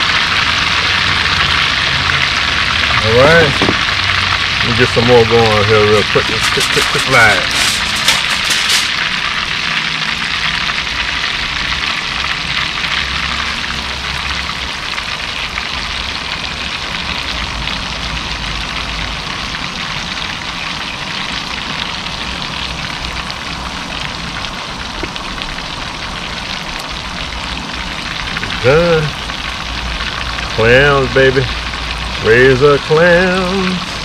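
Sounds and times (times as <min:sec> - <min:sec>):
clams frying in hot oil: 0:00.0 - 0:34.0.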